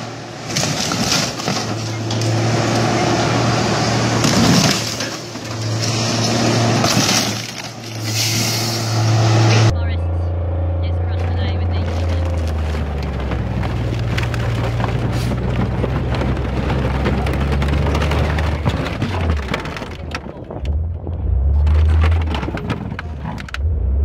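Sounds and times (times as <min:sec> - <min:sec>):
tank engine droning: 0:00.0 - 0:24.0
metal crunching and cracking: 0:00.4 - 0:02.9, 0:04.1 - 0:08.1, 0:11.2 - 0:20.8, 0:21.6 - 0:23.6.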